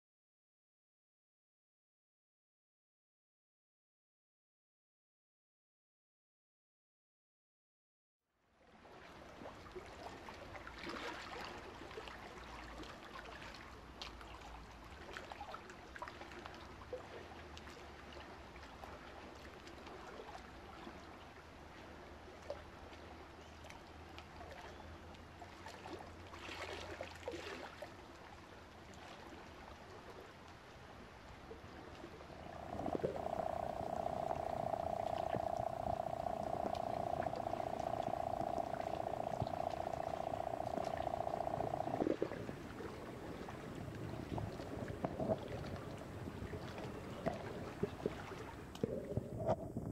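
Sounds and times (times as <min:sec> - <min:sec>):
fine underwater crackle and hiss: 0:08.9 - 0:49.9
loud steady hum: 0:32.4 - 0:43.2
rush of noise: 0:32.4 - 0:46.0.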